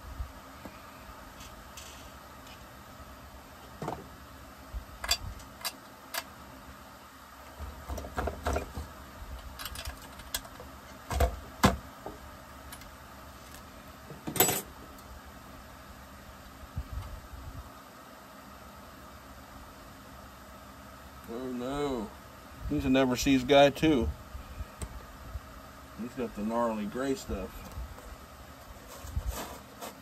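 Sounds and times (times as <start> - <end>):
steady low hum: 0.0 - 30.0
hand tools and parts clicking: 9.5 - 10.6.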